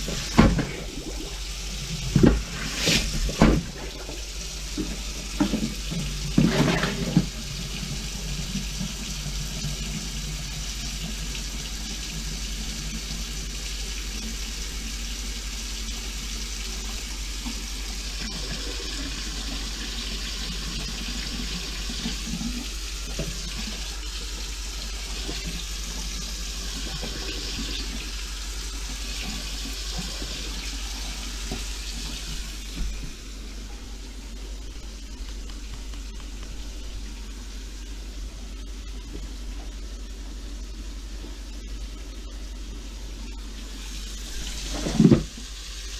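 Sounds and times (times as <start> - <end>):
faucet running into sink: 0.0 - 34.0
plunger pumping sink drain: 0.0 - 45.9.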